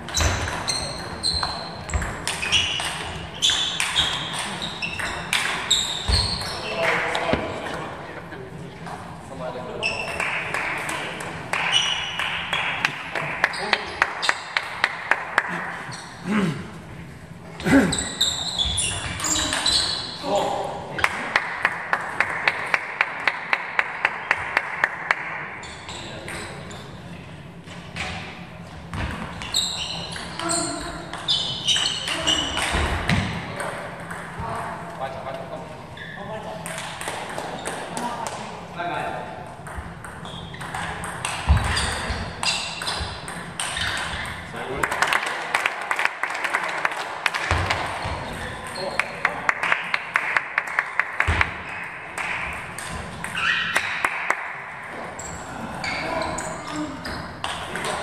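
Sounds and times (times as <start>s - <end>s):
table tennis ball bouncing: 0.1s - 6.7s, 31.1s - 34.7s, 36.6s - 38.4s, 39.6s - 45.3s, 50.6s - 54.6s
short high squeaks: 0.1s - 6.8s, 17.9s - 20.4s, 29.4s - 32.7s.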